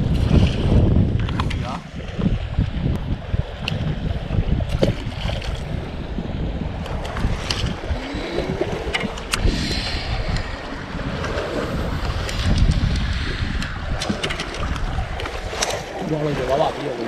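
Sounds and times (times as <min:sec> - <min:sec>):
wind buffeting microphone: 0:00.0 - 0:17.0
fishing gear clicks: 0:08.9 - 0:09.5, 0:12.1 - 0:16.0.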